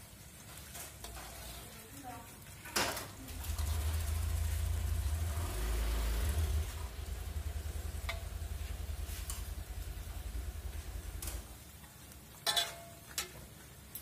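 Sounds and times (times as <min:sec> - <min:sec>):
spatula stirring in wok: 0:00.0 - 0:02.8, 0:06.8 - 0:10.9
sauce sizzling and bubbling: 0:03.5 - 0:14.0
spatula tapping pan: 0:08.0 - 0:08.3.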